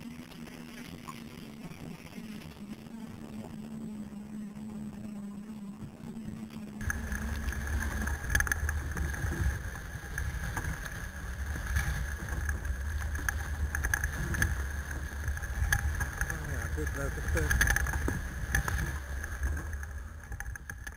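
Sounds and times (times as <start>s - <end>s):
scooter motor whine: 0.0s - 20.9s
plants crackling and brushing: 6.8s - 20.9s.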